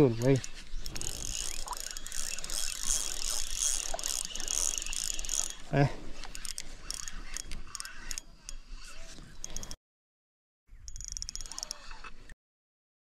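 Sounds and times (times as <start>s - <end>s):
spinning reel ticking rattle: 0.2s - 5.6s, 6.3s - 8.6s, 10.9s - 11.8s.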